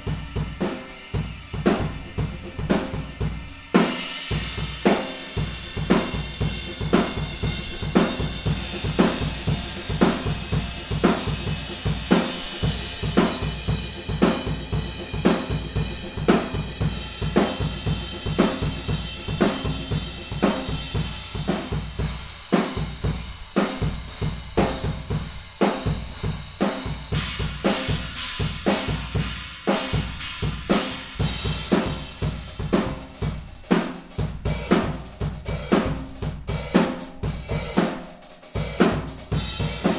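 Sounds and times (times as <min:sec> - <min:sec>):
ringing cymbals: 0:00.0 - 0:29.3
snare drum: 0:00.0 - 0:39.9.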